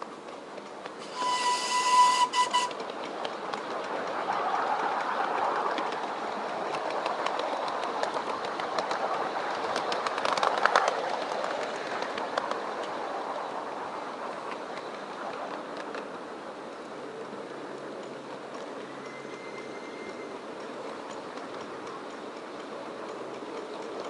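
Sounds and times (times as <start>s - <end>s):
rail joint clicks: 0.0s - 24.0s
wheels rushing on rail: 0.0s - 24.0s.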